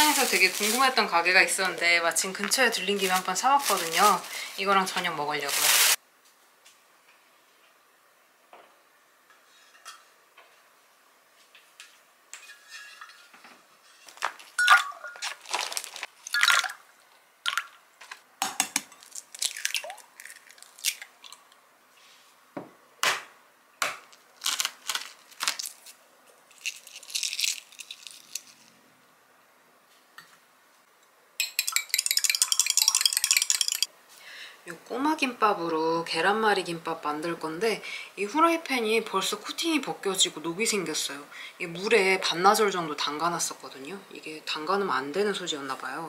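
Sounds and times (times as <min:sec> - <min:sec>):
eggs cracked against glass: 0:18.4 - 0:21.4, 0:26.5 - 0:28.5, 0:31.4 - 0:33.9
dishes and utensils clinking: 0:31.4 - 0:33.9
whisk beating eggs in glass: 0:31.4 - 0:33.9.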